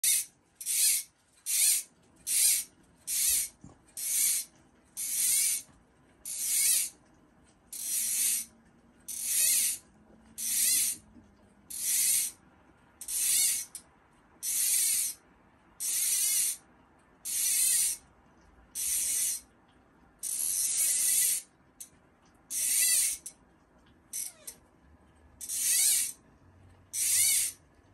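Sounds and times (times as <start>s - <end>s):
fishing reel clicking: 0.0s - 5.7s, 6.3s - 7.0s, 7.7s - 8.5s, 9.1s - 9.8s, 10.4s - 11.0s, 11.7s - 12.4s, 13.0s - 13.8s, 14.4s - 15.2s, 15.8s - 16.6s, 17.2s - 18.0s, 18.8s - 19.4s, 20.2s - 21.5s, 22.5s - 23.4s, 24.2s - 24.5s, 25.4s - 26.2s, 26.9s - 27.6s.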